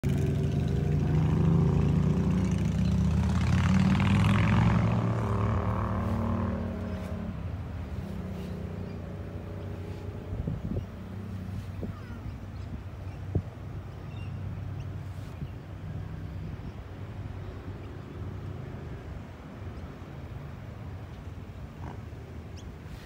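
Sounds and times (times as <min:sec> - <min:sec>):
engine running close by: 0:00.0 - 0:23.0.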